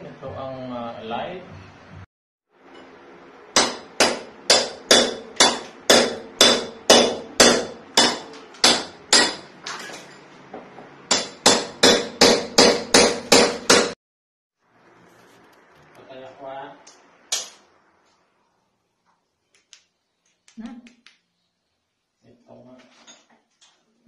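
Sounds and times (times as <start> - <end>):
hammer striking chisel on concrete: 3.6 - 9.5, 11.1 - 14.0.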